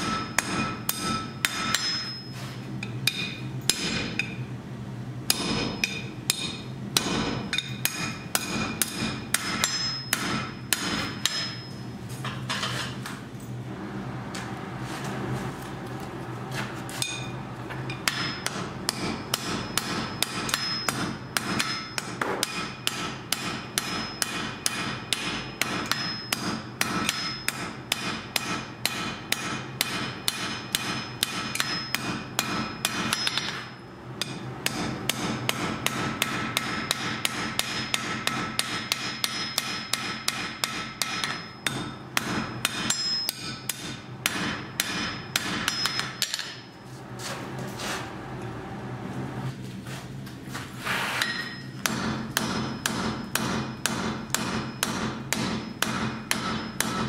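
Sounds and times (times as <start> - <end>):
hammer striking iron on anvil: 0.0 - 4.4, 5.3 - 12.6, 16.9 - 46.7, 51.2 - 57.0.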